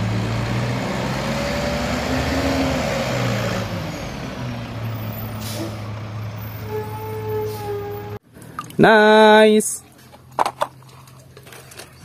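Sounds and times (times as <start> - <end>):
garbage truck diesel engine: 0.0 - 8.4
air brakes hissing: 5.0 - 5.9.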